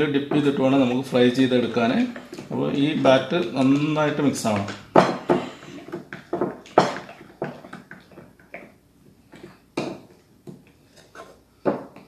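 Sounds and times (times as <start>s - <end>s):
spoon stirring batter in bowl: 0.0s - 12.0s.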